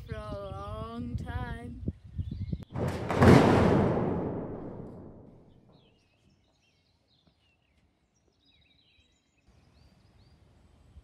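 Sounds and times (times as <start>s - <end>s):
birds chirping and whistling: 1.8s - 2.7s, 5.8s - 10.4s.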